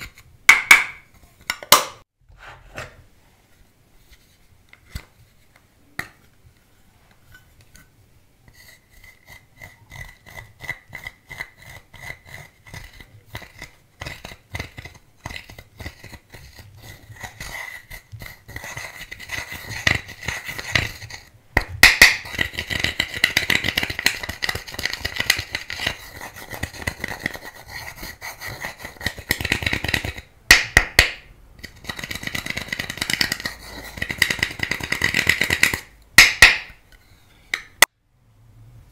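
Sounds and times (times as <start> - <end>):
metal tool scratching powder: 8.5 - 21.3, 22.2 - 30.2, 31.6 - 35.4.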